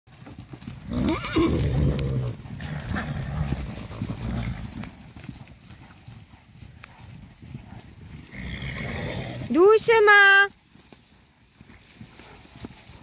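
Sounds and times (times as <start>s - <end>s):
horses galloping on dry ground: 0.1s - 13.0s
horse whinnying: 0.8s - 4.7s, 8.3s - 9.7s.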